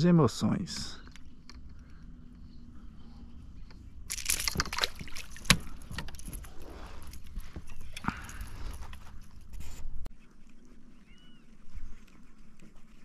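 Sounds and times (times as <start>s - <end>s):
fishing tackle rattling and clicking: 1.0s - 2.1s, 3.6s - 9.3s.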